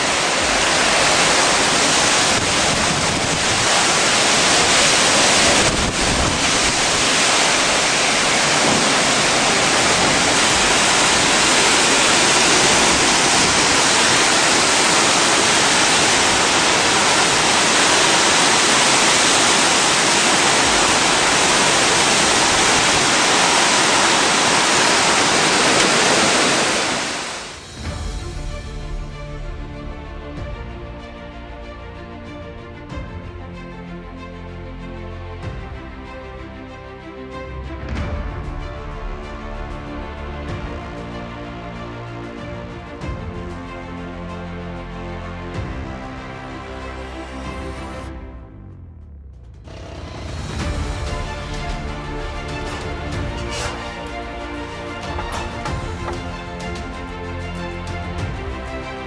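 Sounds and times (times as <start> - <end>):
strong wind: 0.0 - 28.3
driving rain: 0.0 - 33.6, 37.2 - 48.2, 49.5 - 59.0.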